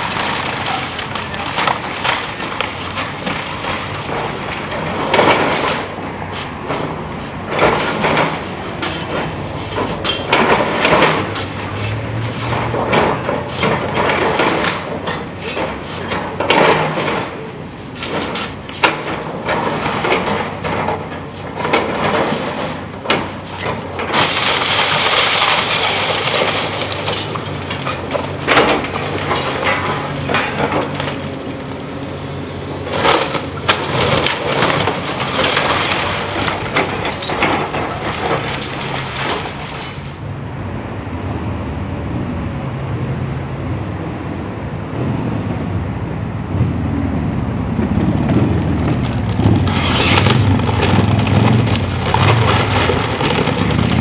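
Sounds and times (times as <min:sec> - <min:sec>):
debris falling: 0:00.0 - 0:06.0, 0:07.5 - 0:17.4, 0:18.0 - 0:40.2, 0:48.1 - 0:54.0
wood splintering and cracking: 0:00.0 - 0:06.0, 0:07.5 - 0:17.4, 0:18.0 - 0:40.2, 0:48.1 - 0:54.0
glass breaking: 0:24.1 - 0:31.6, 0:33.0 - 0:40.2.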